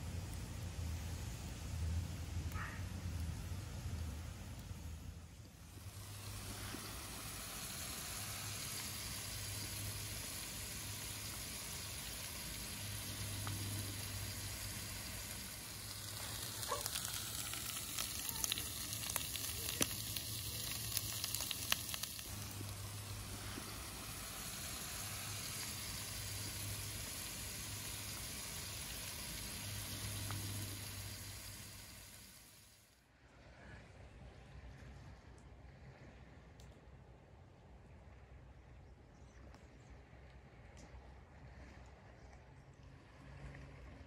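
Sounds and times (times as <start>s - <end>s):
meat sizzling on a griddle: 5.7s - 32.8s
sharp crackling and clicks: 11.2s - 26.8s, 30.0s - 31.0s.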